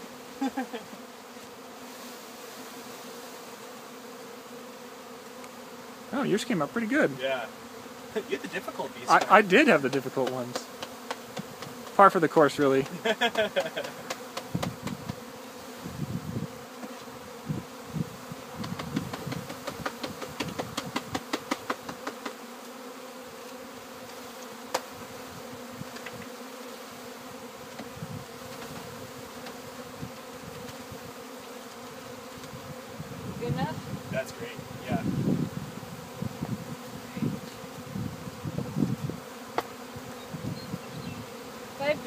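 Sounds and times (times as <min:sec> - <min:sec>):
honeybees buzzing: 0:00.0 - 0:42.0
knocks on wooden box: 0:09.2 - 0:12.0, 0:12.8 - 0:15.2, 0:18.6 - 0:22.4, 0:39.5 - 0:39.7.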